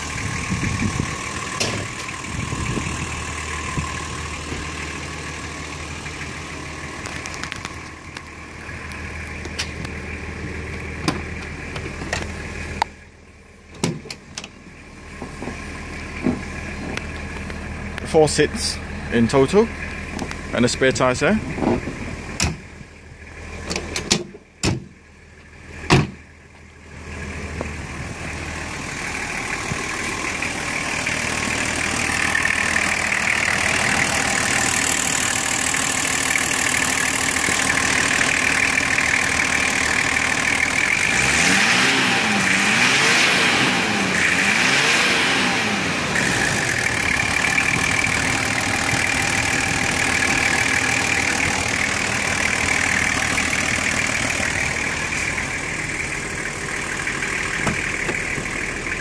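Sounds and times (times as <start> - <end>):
diesel engine idling: 0.0 - 59.0
car door shutting: 13.7 - 14.6, 21.6 - 22.6, 23.6 - 24.9, 25.9 - 26.2, 57.6 - 58.4.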